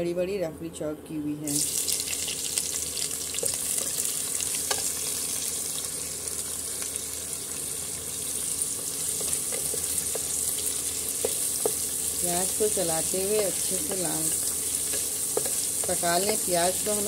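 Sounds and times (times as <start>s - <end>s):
onions sizzling in hot oil: 1.5s - 17.0s
wooden spatula knocking on pot: 14.8s - 17.0s.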